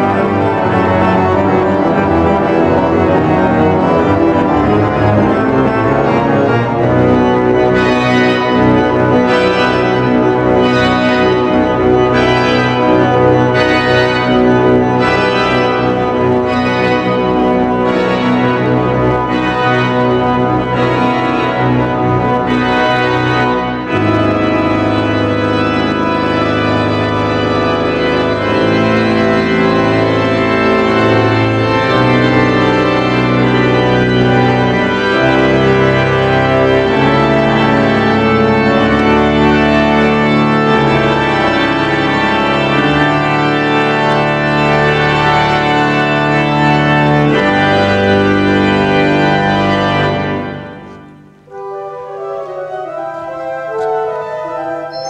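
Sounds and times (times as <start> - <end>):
pipe organ playing sustained chords: 0.0 - 55.0.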